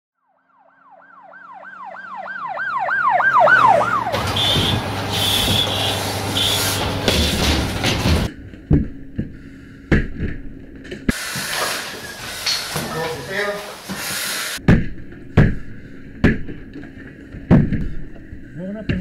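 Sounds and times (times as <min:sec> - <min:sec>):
emergency siren yelping: 0:00.2 - 0:06.7
loud rushing hiss: 0:04.4 - 0:08.3, 0:11.1 - 0:14.6.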